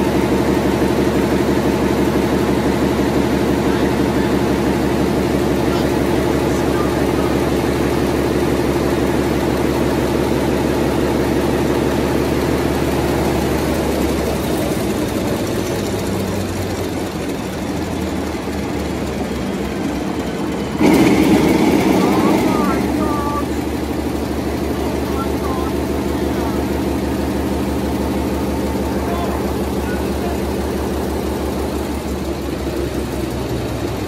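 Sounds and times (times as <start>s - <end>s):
diesel engine running: 0.0s - 34.0s
rush of noise: 18.4s - 33.2s.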